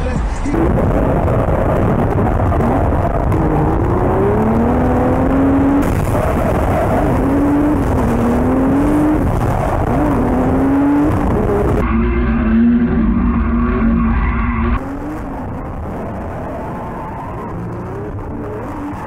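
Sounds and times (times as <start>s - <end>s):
spinning tyres rushing: 0.0s - 19.0s
car engine revving high: 0.2s - 19.0s.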